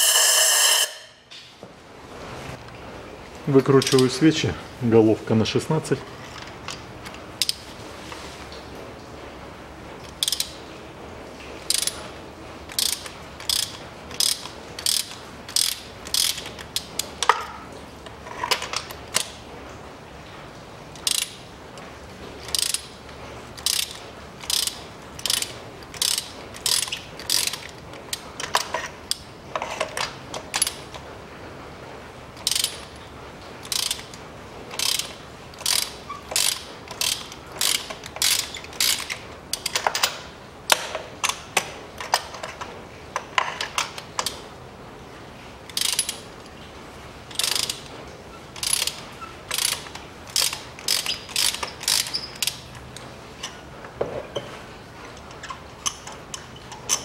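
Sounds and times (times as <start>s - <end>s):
ratchet wrench clicking: 10.2s - 10.5s, 11.7s - 12.0s, 12.7s - 17.3s, 21.0s - 21.4s, 22.5s - 22.9s, 23.6s - 27.7s, 30.5s - 30.8s, 32.4s - 32.9s, 33.6s - 34.1s, 34.7s - 41.4s, 45.7s - 46.2s, 47.3s - 47.9s, 48.6s - 52.6s.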